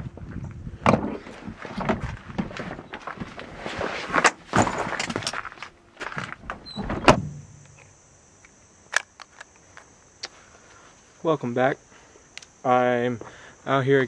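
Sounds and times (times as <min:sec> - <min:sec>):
truck door rustling and knocks: 0:00.8 - 0:03.4, 0:06.2 - 0:07.6
truck door shutting: 0:06.2 - 0:07.8
faint high hiss: 0:06.5 - 0:14.0.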